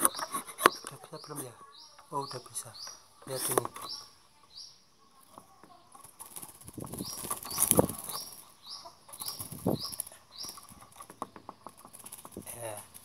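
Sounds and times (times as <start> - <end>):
bird wings fluttering in cage: 6.0 - 8.5, 9.1 - 13.0.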